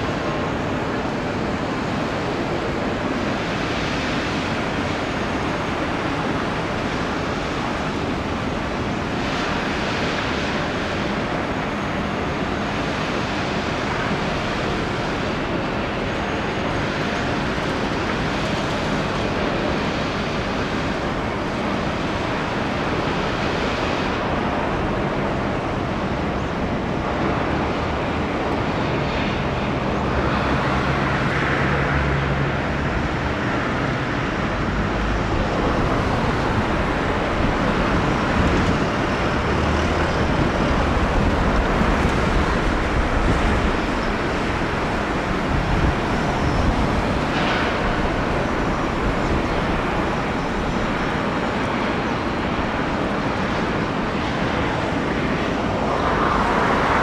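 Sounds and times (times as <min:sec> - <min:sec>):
passing road traffic: 0:29.0 - 0:57.0.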